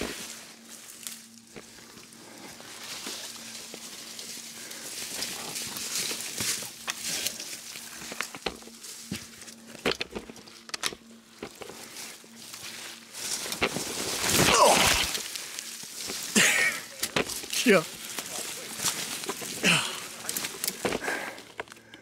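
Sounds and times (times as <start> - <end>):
branches brushing clothing: 0.0 - 21.6
footsteps through brush: 0.0 - 22.0
twigs snapping: 0.8 - 22.0.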